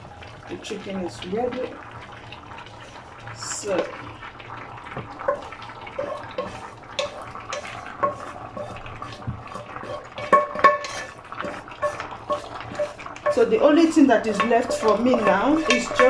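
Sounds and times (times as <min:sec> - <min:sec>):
wooden spatula scraping a pan: 0:04.9 - 0:16.0.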